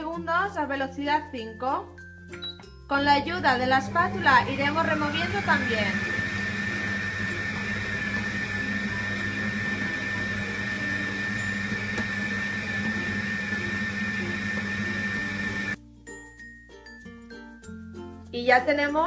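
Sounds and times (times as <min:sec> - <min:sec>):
food processor motor whining: 0:03.5 - 0:15.8.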